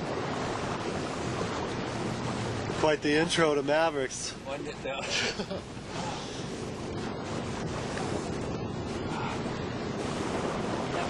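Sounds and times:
ocean surf: 0.0s - 11.0s
wind on microphone: 0.0s - 11.0s.

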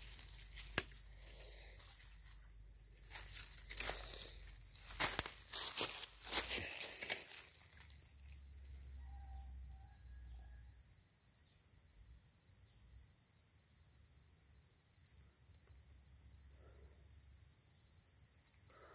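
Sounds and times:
insect trilling: 0.0s - 11.7s.

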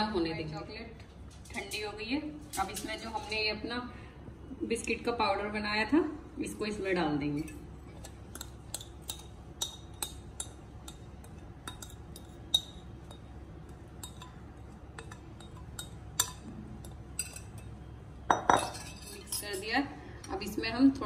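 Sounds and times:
spoon clinking against glass bowl: 7.4s - 19.6s.

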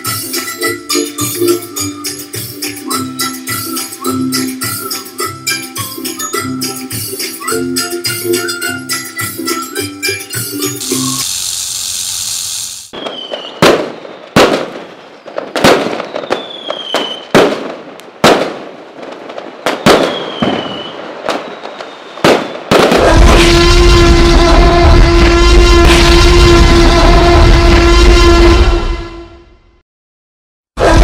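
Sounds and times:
music: 0.0s - 11.2s
falling firework whistle: 8.1s - 17.3s, 19.6s - 29.4s
short hiss: 10.8s - 12.9s
fireworks bangs: 10.8s - 28.9s.

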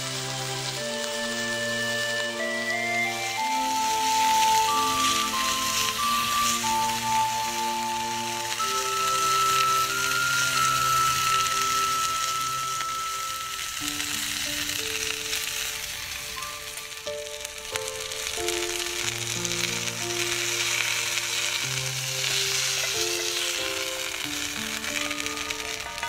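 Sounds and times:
chicken sizzling in frying pan: 0.0s - 26.0s
soft background music: 0.0s - 26.0s.

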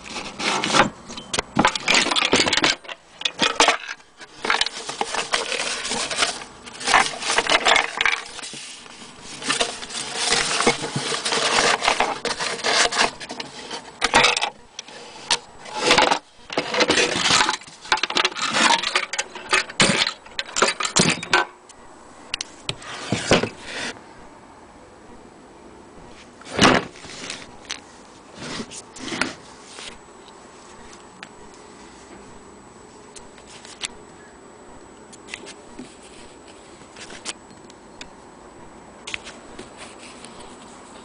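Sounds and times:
paper rustling and crinkling: 0.0s - 21.4s, 26.1s - 32.4s, 33.0s - 34.0s, 35.2s - 37.4s, 39.1s - 41.0s.

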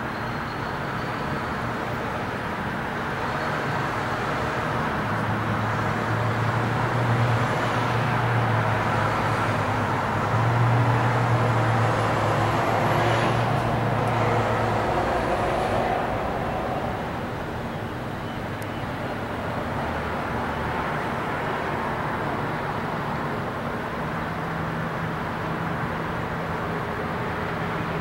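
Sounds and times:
city rumble: 0.0s - 28.0s.

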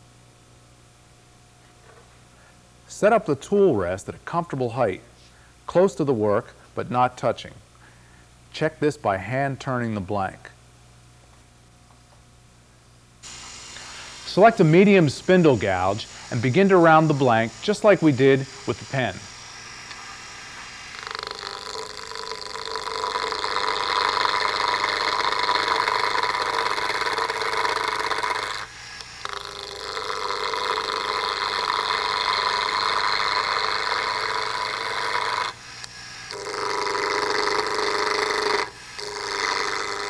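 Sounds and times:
gouge cutting wood on lathe: 13.3s - 35.6s, 36.3s - 40.0s.

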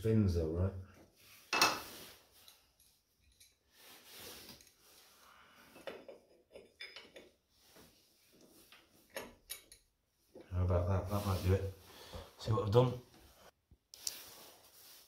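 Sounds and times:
spanner clinking on metal: 9.1s - 9.9s.

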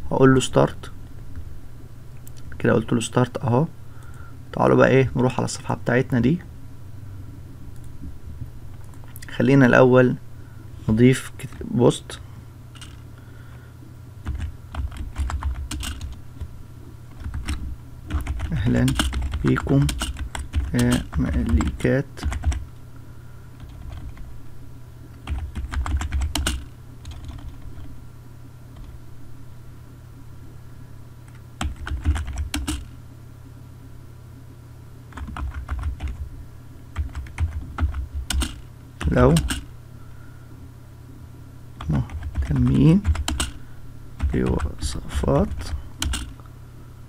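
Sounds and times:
low steady hum: 0.0s - 47.0s
computer keyboard typing: 14.2s - 16.5s, 17.1s - 22.6s, 23.6s - 24.3s, 25.2s - 27.9s, 31.6s - 32.9s, 35.1s - 36.3s, 36.9s - 39.7s, 41.8s - 43.6s, 44.2s - 44.8s, 45.5s - 46.4s.

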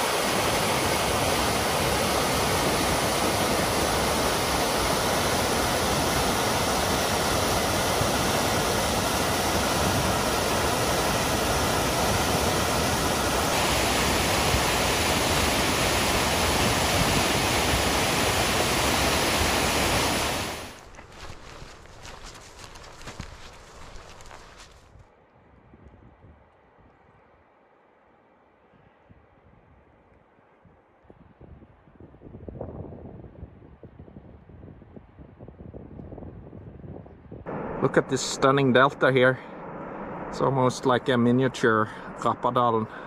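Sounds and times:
waterfall rushing: 0.0s - 20.8s.

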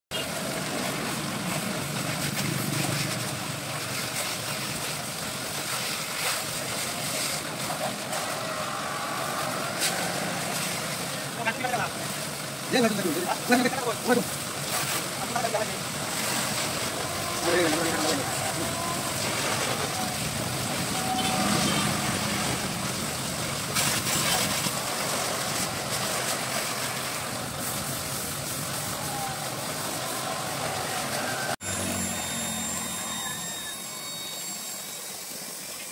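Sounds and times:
pressure washer jet hissing: 0.2s - 35.9s
pump motor running: 0.2s - 35.9s
motor drone: 30.8s - 35.9s.

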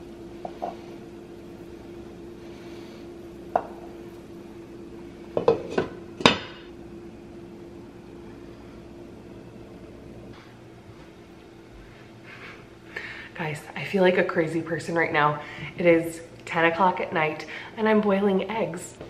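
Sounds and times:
steady low hum: 0.0s - 19.0s
eggs knocking against metal pan: 3.5s - 4.0s.

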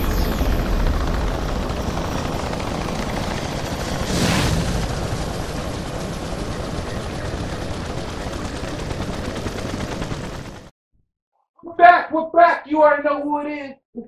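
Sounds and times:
whoosh: 4.0s - 5.2s.

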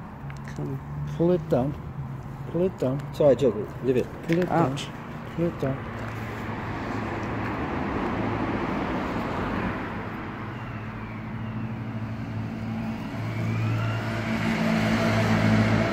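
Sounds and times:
engine humming: 0.0s - 15.9s.

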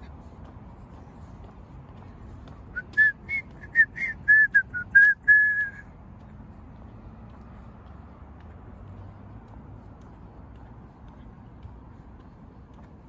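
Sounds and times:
person whistling: 2.8s - 5.8s.

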